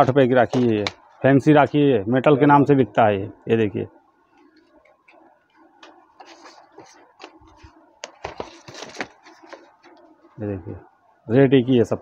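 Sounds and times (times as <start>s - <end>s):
cardboard boxes rustling and clicking: 6.2s - 10.0s.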